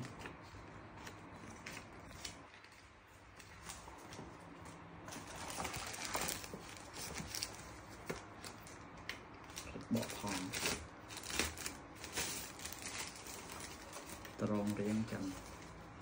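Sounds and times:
plastic wrapping crinkling: 0.0 - 16.0.

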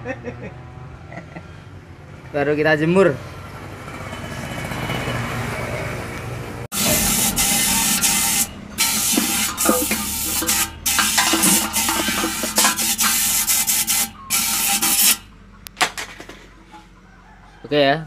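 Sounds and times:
compressed air blow gun hissing: 6.7 - 15.2
air compressor humming: 6.7 - 15.4.

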